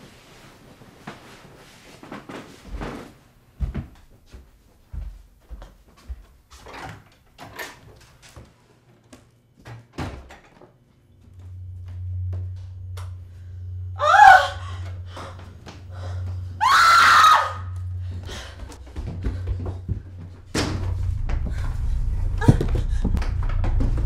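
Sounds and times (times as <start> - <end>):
steady low hum: 10.7 - 24.0
woman screaming: 14.0 - 14.9, 16.5 - 17.8
knocks and thuds: 18.7 - 24.0.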